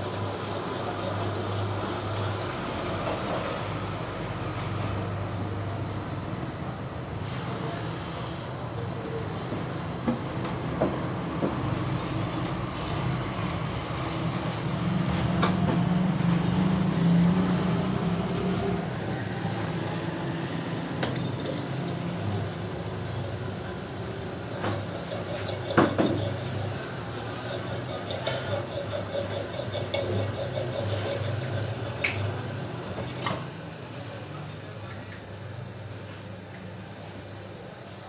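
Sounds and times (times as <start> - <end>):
polishing machine humming: 22.2 - 33.2.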